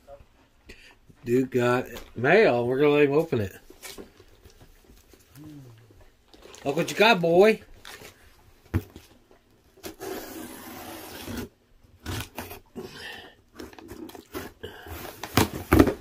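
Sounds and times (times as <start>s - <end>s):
packing tape ripping: 9.8s - 12.7s
cardboard scraping and rubbing: 9.8s - 12.8s.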